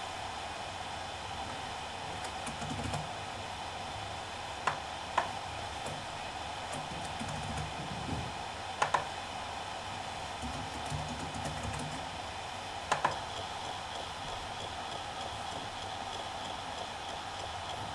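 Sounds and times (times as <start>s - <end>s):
hard drive spinning whir: 0.0s - 17.9s
sharp hard drive seek clicks: 2.1s - 3.2s, 4.6s - 9.2s, 10.3s - 12.2s, 12.8s - 17.9s
hard drive heads seeking chatter: 4.6s - 9.2s, 10.3s - 17.9s.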